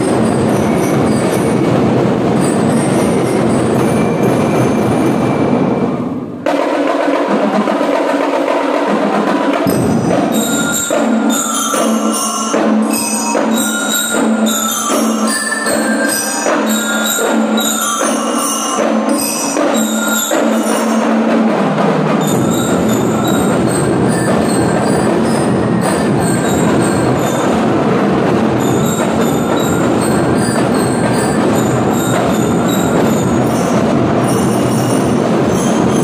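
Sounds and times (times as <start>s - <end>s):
percussion: 0.0s - 36.0s
bell lyre melody: 9.7s - 21.4s, 28.6s - 36.0s.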